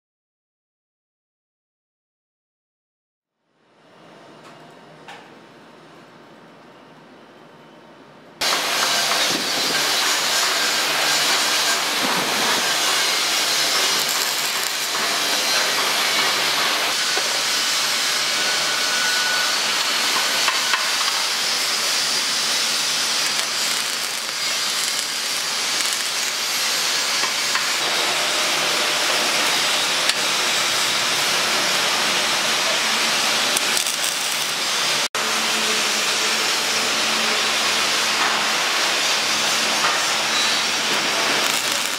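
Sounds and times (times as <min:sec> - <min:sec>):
welding arc hissing crackle: 0:08.4 - 0:35.1, 0:37.8 - 0:41.9.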